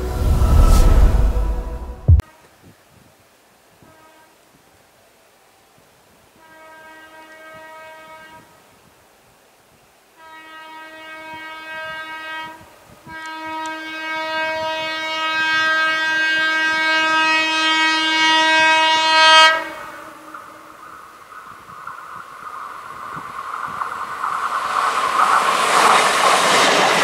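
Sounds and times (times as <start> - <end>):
train horn blasts: 0.0 - 2.4, 3.8 - 4.4, 6.4 - 8.6, 10.2 - 20.8.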